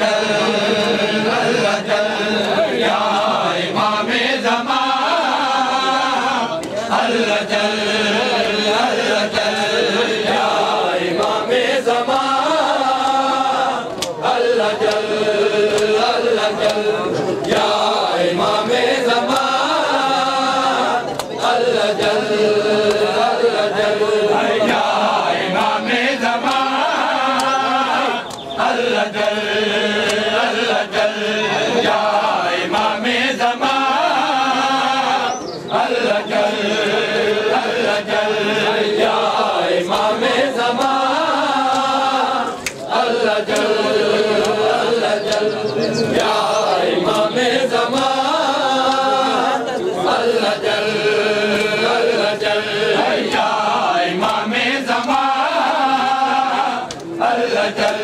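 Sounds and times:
men chanting in unison: 0:00.0 - 0:58.0
hands slapping on chests: 0:02.4 - 0:03.4, 0:11.1 - 0:11.4, 0:12.1 - 0:24.0, 0:24.6 - 0:33.8, 0:39.8 - 0:49.3, 0:50.1 - 0:55.8, 0:56.5 - 0:58.0.

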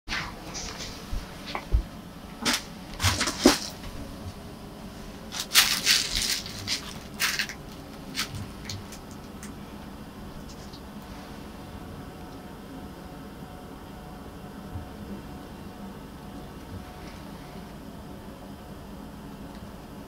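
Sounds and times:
fabric cat tunnel rustling: 0:05.2 - 0:09.0.

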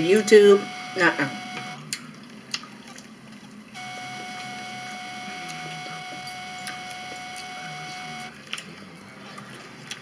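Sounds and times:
steady electronic tone: 0:00.0 - 0:01.8, 0:03.7 - 0:08.3.

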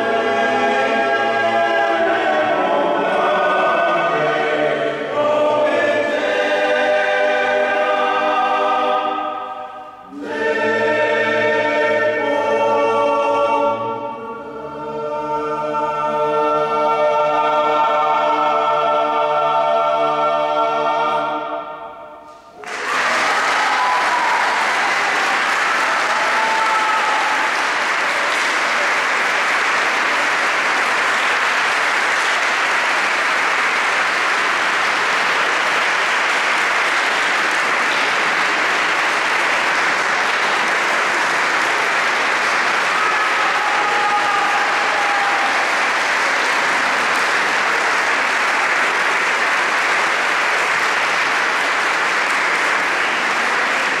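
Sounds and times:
audience applauding: 0:22.6 - 0:54.0.

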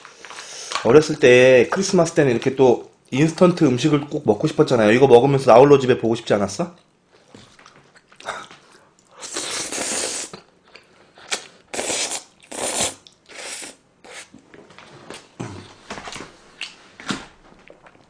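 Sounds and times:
chewing: 0:06.8 - 0:09.3
spaghetti slurping: 0:09.1 - 0:10.4, 0:11.2 - 0:14.3.

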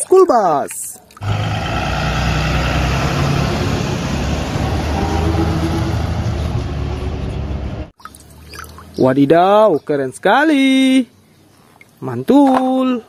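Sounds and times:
bus driving past: 0:01.2 - 0:07.9.

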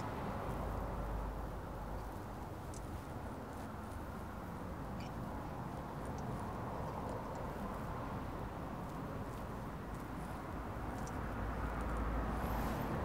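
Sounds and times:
steady background noise: 0:00.0 - 0:13.0
faint clicks: 0:02.0 - 0:03.0, 0:06.0 - 0:07.6, 0:10.8 - 0:12.1.

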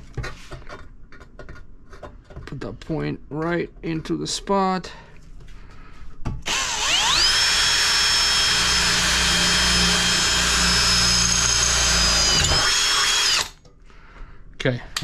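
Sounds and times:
drill motor whine: 0:06.5 - 0:13.6.

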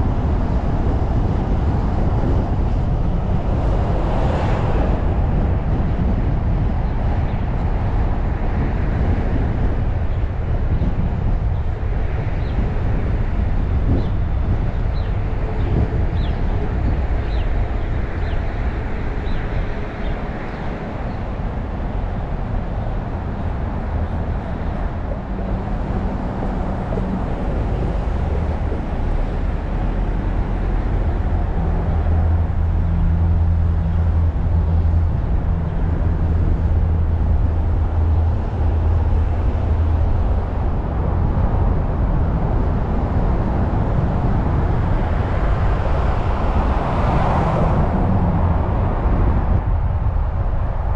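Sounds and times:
car road and engine rumble: 0:00.0 - 0:50.9
surrounding traffic: 0:00.0 - 0:50.9
low hum: 0:22.0 - 0:50.9.

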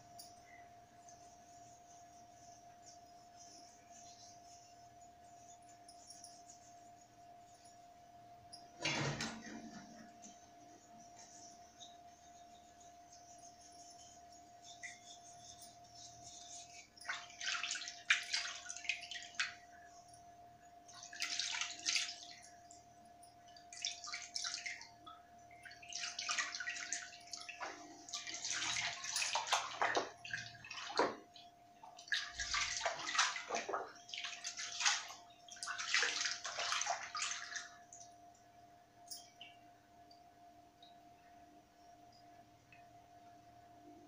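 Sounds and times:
water sloshing and splashing: 0:16.3 - 0:19.7, 0:20.9 - 0:22.5, 0:23.5 - 0:24.9, 0:25.5 - 0:38.0.

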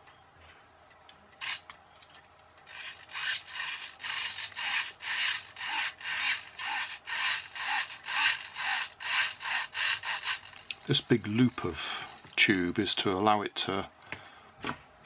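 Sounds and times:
small servo buzzing: 0:01.4 - 0:01.7, 0:02.6 - 0:10.7.

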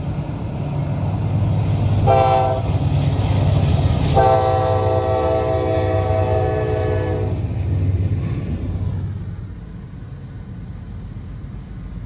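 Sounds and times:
diesel locomotive rumble: 0:00.0 - 0:12.0
locomotive air horn blasts: 0:02.0 - 0:02.7, 0:04.2 - 0:07.4.

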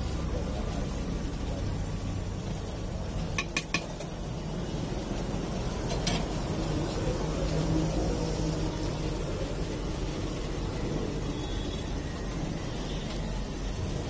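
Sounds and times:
street food stall background rumble: 0:00.0 - 0:14.0
metal spatula tapping and scraping griddle: 0:03.2 - 0:04.2, 0:05.9 - 0:06.4.

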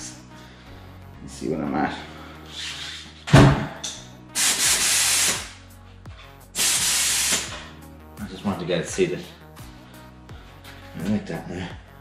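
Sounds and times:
compressed air hissing: 0:04.4 - 0:05.6, 0:06.6 - 0:07.7.

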